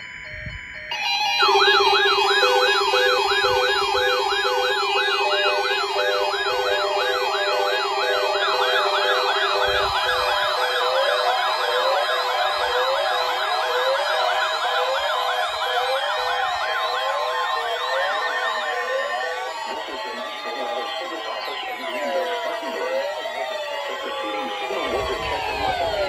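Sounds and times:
weather radio alarms wailing: 0:00.0 - 0:26.0
beeps: 0:00.9 - 0:12.2.

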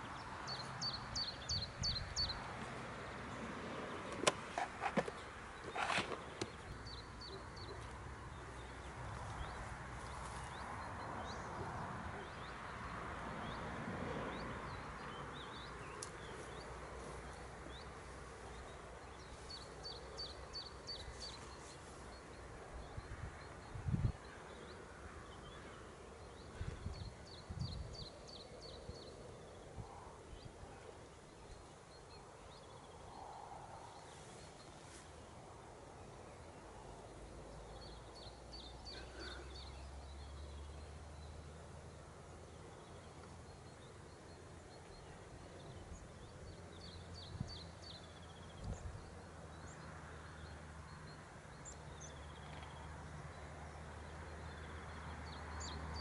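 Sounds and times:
small bird singing: 0:00.0 - 0:02.4, 0:42.4 - 0:56.0.

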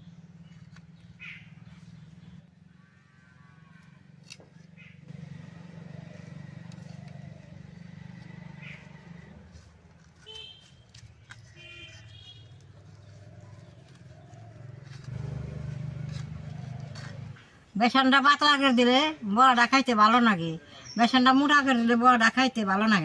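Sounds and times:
faint distant calls: 0:00.0 - 0:17.7.

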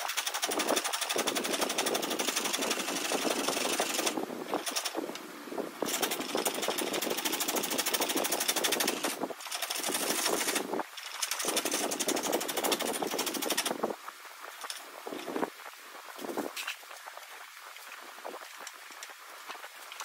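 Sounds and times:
chisel scraping spinning wood: 0:00.0 - 0:05.0, 0:05.8 - 0:13.8.

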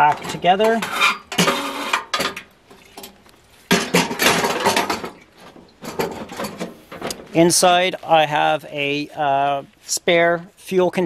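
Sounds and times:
metal clattering: 0:00.0 - 0:07.4.

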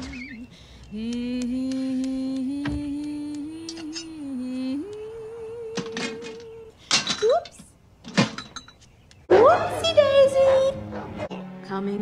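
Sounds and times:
woman humming: 0:00.0 - 0:06.8.

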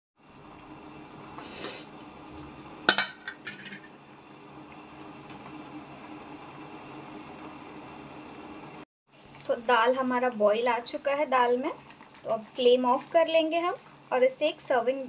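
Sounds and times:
pot bubbling on gas burner: 0:00.2 - 0:08.8, 0:09.6 - 0:15.0
short hiss: 0:01.4 - 0:01.9.

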